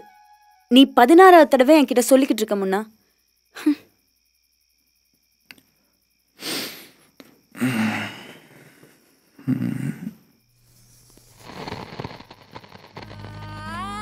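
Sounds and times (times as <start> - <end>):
soft mouth clicks: 5.4 - 5.7.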